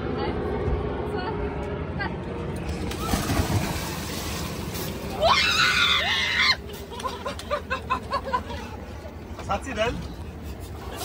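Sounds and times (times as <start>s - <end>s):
swimmer splashing into water: 2.8s - 5.7s
woman screaming: 5.2s - 6.6s.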